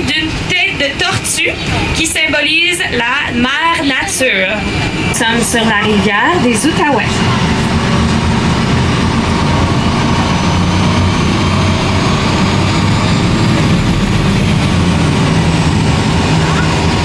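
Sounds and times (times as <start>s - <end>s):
engine low drone: 0.0s - 17.0s
faint high whine: 0.3s - 17.0s.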